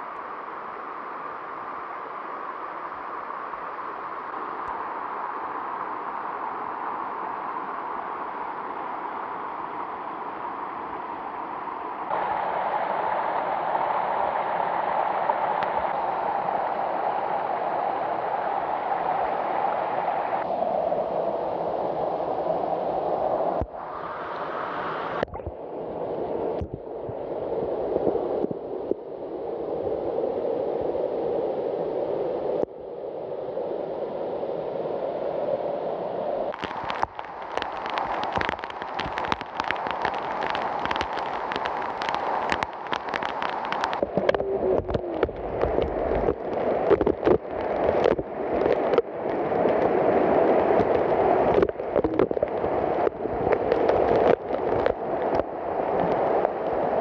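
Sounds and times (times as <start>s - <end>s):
waterfall pouring onto rocks: 36.6s - 49.0s, 50.7s - 55.4s.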